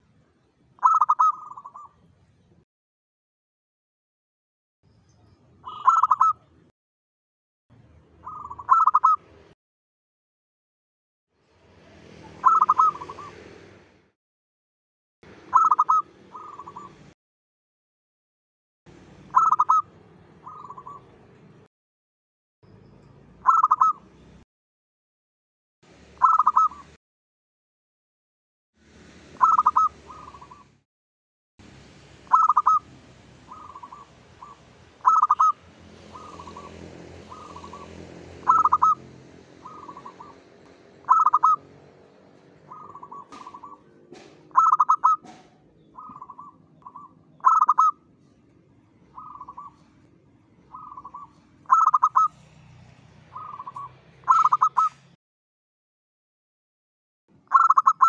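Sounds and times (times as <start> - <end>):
dove cooing: 0.8 - 1.9, 5.7 - 6.4, 8.2 - 9.2, 12.3 - 13.4, 15.5 - 17.0, 19.3 - 21.1, 23.4 - 24.0, 26.2 - 26.8, 29.4 - 30.7, 32.3 - 32.9, 33.5 - 41.6, 42.6 - 48.0, 49.2 - 49.9, 50.7 - 52.4, 53.3 - 55.0, 57.5 - 58.0.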